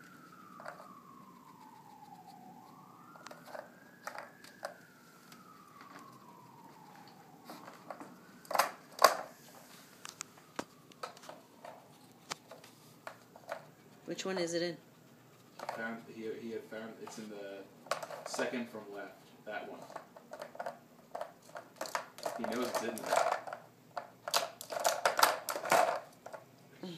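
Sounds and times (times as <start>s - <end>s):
faint siren wailing: 0.0s - 26.9s
plastic toy clicks and knocks: 20.3s - 26.4s.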